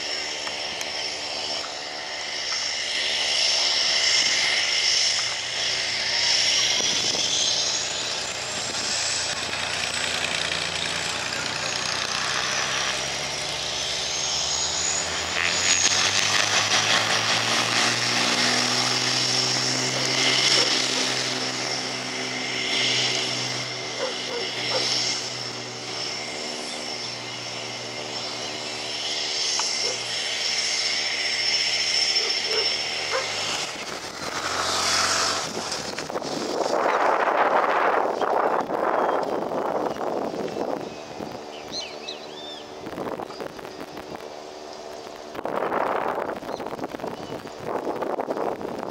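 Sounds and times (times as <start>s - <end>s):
propeller aircraft engines: 0.0s - 48.9s.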